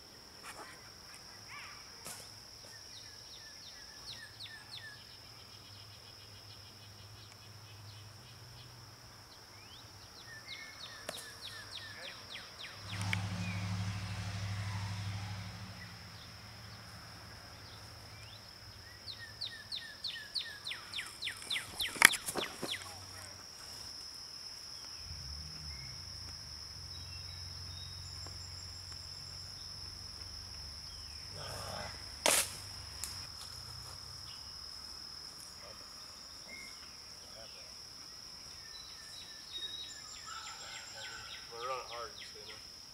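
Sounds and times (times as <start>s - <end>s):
insect drone: 0.0s - 42.9s
chirps: 2.6s - 16.8s, 17.6s - 23.4s, 35.4s - 42.6s.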